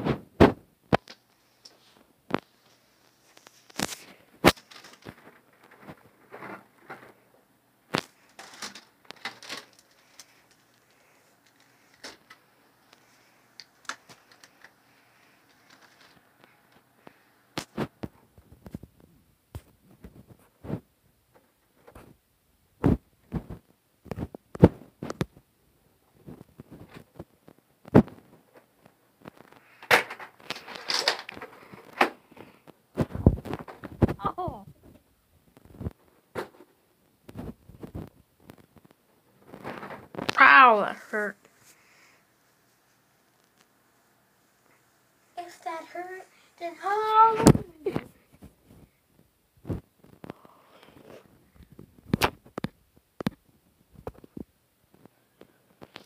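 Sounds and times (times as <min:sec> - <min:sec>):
rustling: 0:00.0 - 0:22.2, 0:22.8 - 0:56.0.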